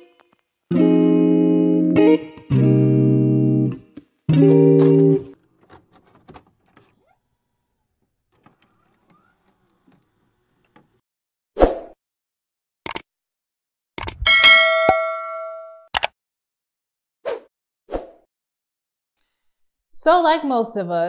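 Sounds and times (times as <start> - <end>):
quick clicks: 12.9 - 13.1, 14.0 - 14.2.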